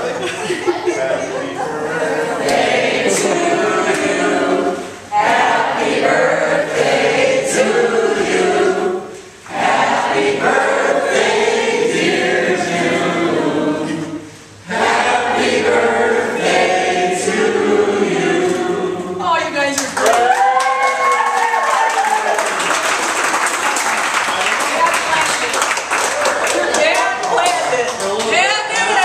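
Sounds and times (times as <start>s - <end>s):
crowd singing unaccompanied: 0.0s - 19.4s.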